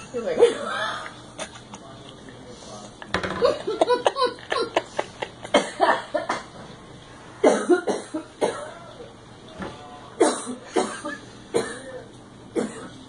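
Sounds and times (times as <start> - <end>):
person laughing: 3.4 - 6.1.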